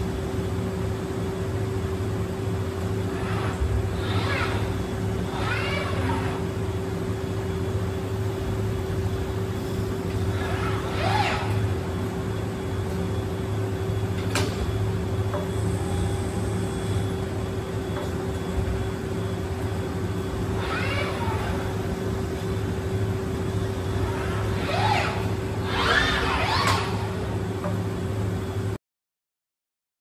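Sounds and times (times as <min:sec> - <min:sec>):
steady machine hum: 0:00.0 - 0:28.8
robot arm servo motors whining: 0:02.8 - 0:07.6, 0:09.5 - 0:27.8.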